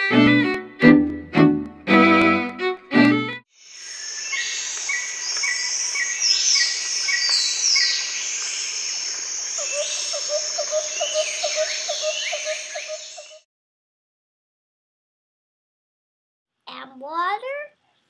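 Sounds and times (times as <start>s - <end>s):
birds chirping: 3.6s - 13.4s
high insect drone: 3.6s - 13.4s.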